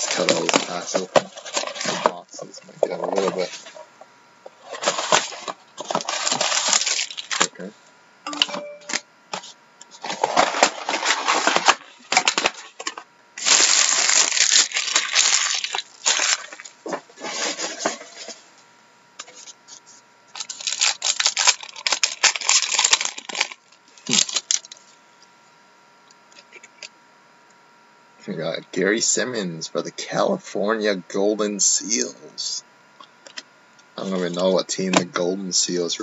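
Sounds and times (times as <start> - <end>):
foil wrappers crinkling and tearing: 0.0 - 2.2, 4.6 - 7.7, 9.9 - 18.3, 19.2 - 25.0.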